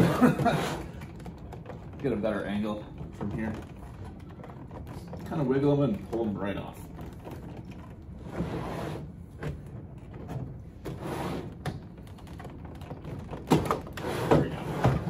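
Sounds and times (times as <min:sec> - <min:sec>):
plastic case scraping on table: 0:00.0 - 0:01.1, 0:08.2 - 0:09.2, 0:10.8 - 0:11.7, 0:13.9 - 0:15.0.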